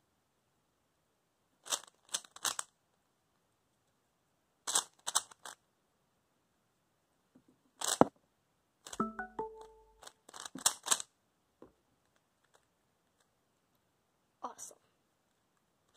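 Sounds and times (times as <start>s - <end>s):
puzzle cube layers clicking: 4.7s - 5.6s, 8.9s - 11.0s.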